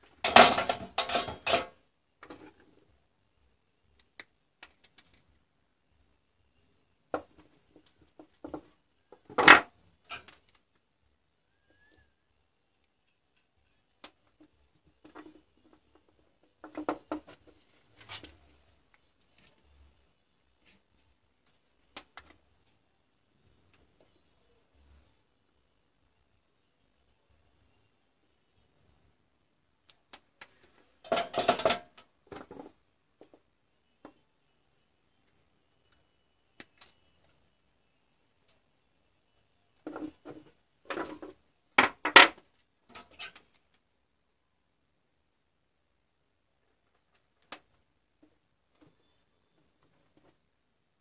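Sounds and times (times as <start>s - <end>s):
small metallic clicks and taps: 35.2s - 37.4s.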